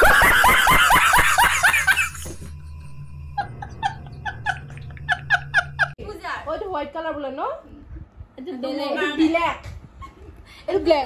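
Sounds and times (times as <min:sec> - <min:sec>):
man laughing hysterically: 0:00.0 - 0:02.3, 0:03.4 - 0:06.0.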